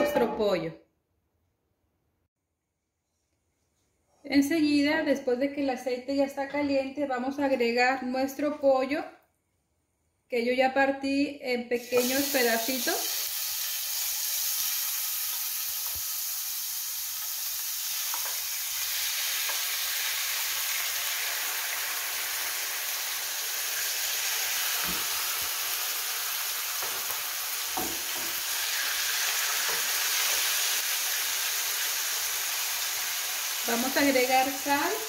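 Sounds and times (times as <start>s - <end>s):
chicken sizzling in oil: 11.8s - 35.0s.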